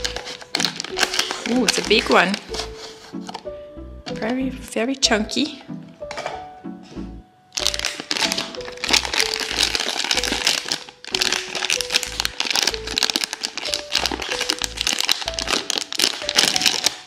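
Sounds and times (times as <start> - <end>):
plastic wrapper crinkling: 0.0 - 3.5, 7.5 - 17.0
background music with steady beat: 0.0 - 17.0.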